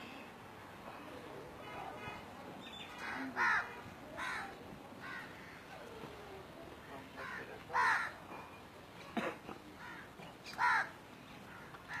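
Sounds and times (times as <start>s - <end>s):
crows cawing: 3.0s - 5.8s, 6.9s - 8.2s, 9.8s - 12.0s.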